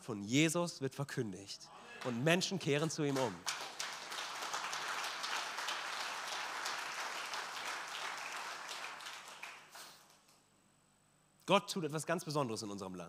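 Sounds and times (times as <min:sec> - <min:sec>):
audience applauding: 0:01.9 - 0:10.3.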